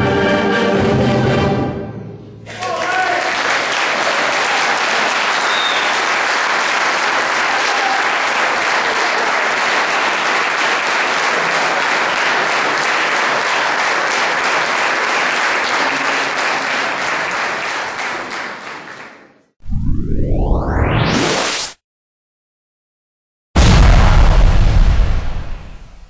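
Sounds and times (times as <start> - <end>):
audience applauding: 2.5 - 19.5.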